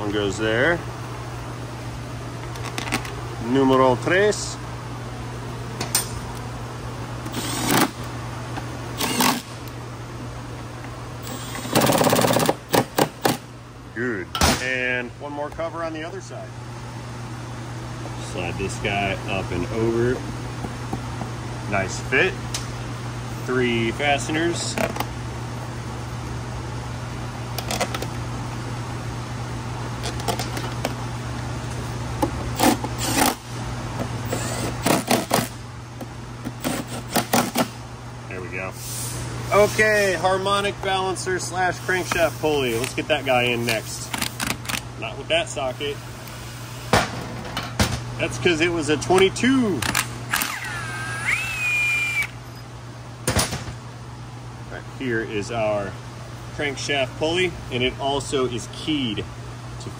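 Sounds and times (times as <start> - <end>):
impact driver motor whirring: 7.3 - 8.0, 9.0 - 9.5, 11.2 - 12.6, 32.6 - 33.4, 34.3 - 35.5, 50.3 - 52.4.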